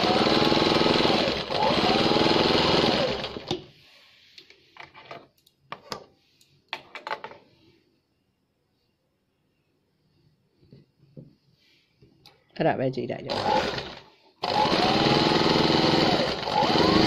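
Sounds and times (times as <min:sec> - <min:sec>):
sewing machine stitching: 0:00.0 - 0:03.6, 0:13.3 - 0:17.0.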